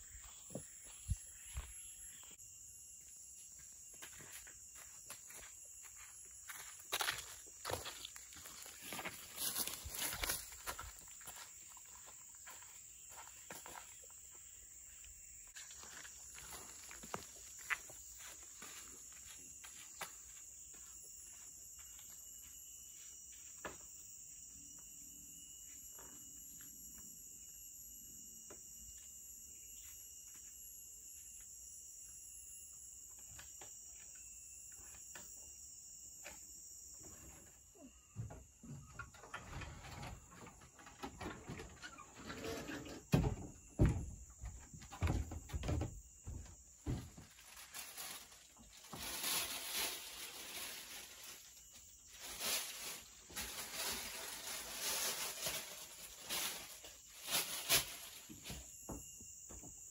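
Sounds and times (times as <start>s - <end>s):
insect chorus: 0.0s - 59.9s
thumps and knocks on wood: 43.1s - 47.2s.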